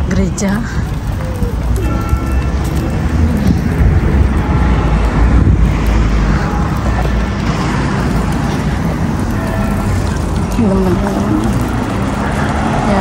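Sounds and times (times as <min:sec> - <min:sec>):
street noise low rumble: 0:00.0 - 0:13.0.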